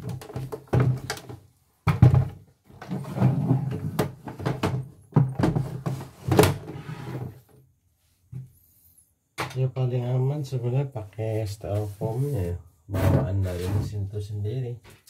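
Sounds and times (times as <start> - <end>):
hard plastic knocking and scraping: 0.0 - 7.5.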